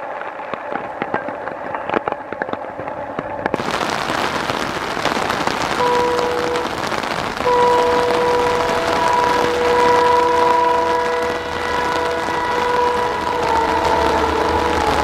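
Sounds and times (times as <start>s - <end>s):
heavy rain: 0.0s - 15.0s
train horn: 5.7s - 15.0s.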